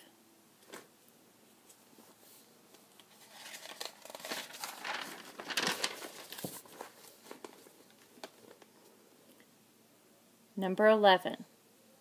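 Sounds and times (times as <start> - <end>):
crinkling and rustling: 0.6 - 9.0.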